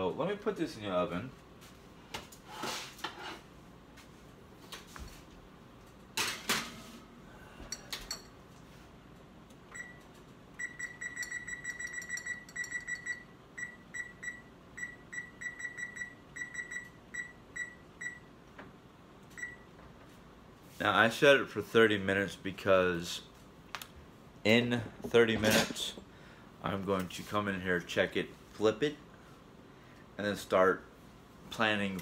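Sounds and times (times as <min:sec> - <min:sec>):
oven keypad beeps: 0:09.7 - 0:10.0, 0:10.6 - 0:18.3, 0:19.4 - 0:19.7.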